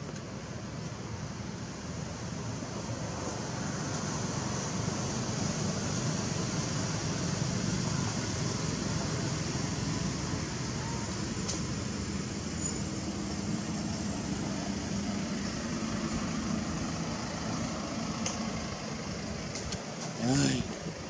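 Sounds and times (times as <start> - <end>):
ambient rumble with hiss: 0.2 - 21.0.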